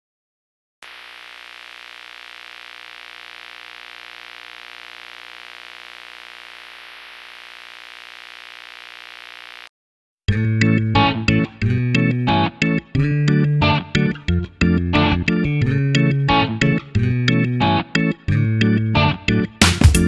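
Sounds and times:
electronic static hiss: 0:00.8 - 0:09.7
electric guitar and bass music: 0:10.3 - 0:20.0.

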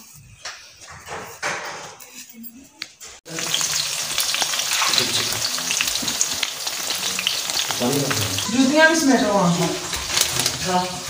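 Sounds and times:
onions sizzling in oil: 0:03.3 - 0:11.0.

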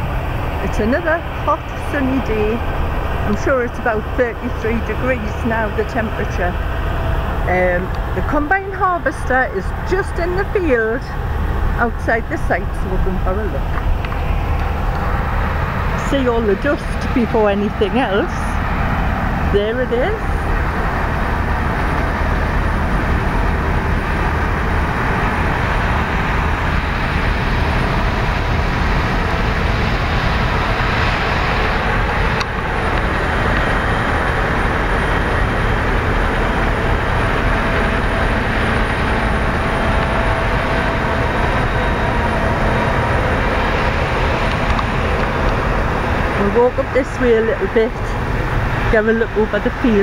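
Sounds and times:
combine harvester running: 0:00.0 - 0:50.0.

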